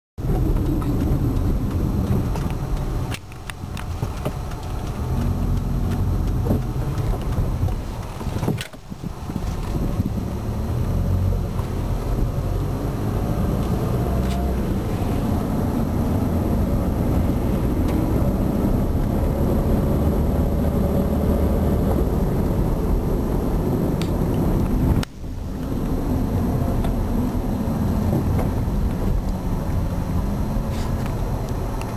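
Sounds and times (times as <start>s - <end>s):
car engine and road noise: 0.2s - 31.9s.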